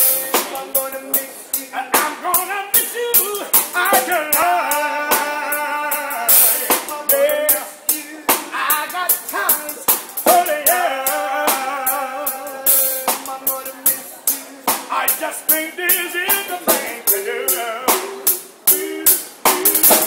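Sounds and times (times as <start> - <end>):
snare drum hits and rimshots: 0.0 - 0.9, 1.9 - 2.2, 6.3 - 10.6, 12.7 - 15.6, 16.3 - 17.2, 17.9 - 20.0
man singing: 0.0 - 20.0.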